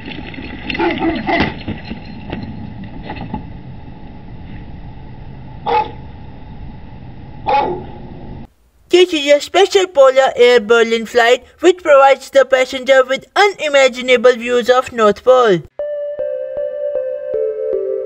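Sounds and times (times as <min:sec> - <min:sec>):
dog barking: 0:05.6 - 0:06.0, 0:07.4 - 0:07.9
microphone hiss: 0:08.2 - 0:15.7.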